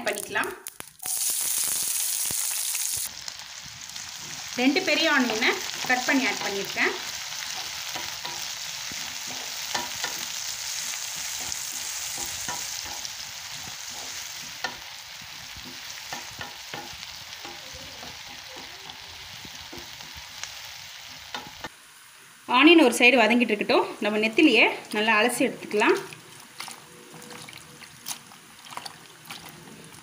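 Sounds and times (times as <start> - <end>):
onions sizzling in oil: 0.0 - 30.0
spatula scraping and tapping pan: 4.2 - 20.5, 21.3 - 21.7.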